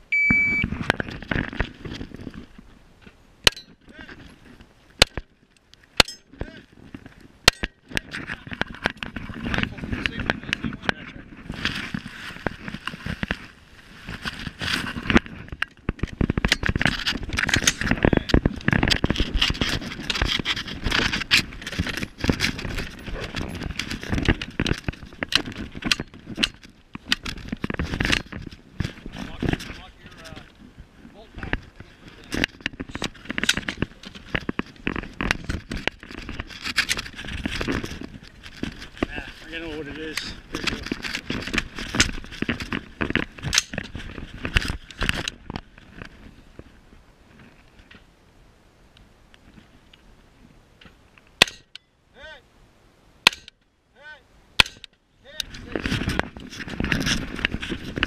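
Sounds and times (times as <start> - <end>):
shot timer beep: 0.1 - 0.6
gear scraping and rattling: 0.6 - 2.7, 3.5 - 48.0, 54.7 - 58.0
sharp cracks: 51.3 - 51.9, 53.2 - 53.7, 54.6 - 55.6.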